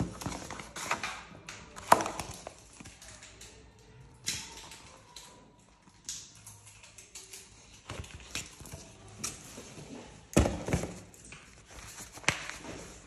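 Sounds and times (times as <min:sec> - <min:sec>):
paper and cardboard rustling: 0:00.0 - 0:02.9, 0:07.6 - 0:13.0.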